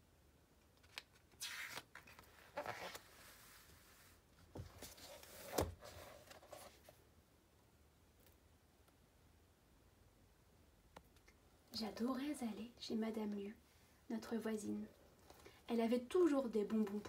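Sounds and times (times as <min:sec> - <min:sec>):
paper page rustling: 0:00.8 - 0:04.1, 0:04.8 - 0:06.9.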